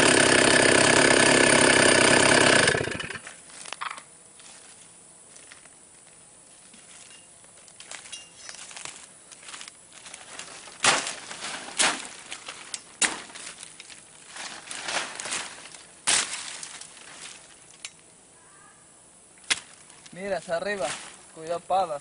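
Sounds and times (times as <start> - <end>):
dry leaves rustling and crunching: 6.6 - 17.8, 19.6 - 21.6
sticks snapping: 19.4 - 20.2.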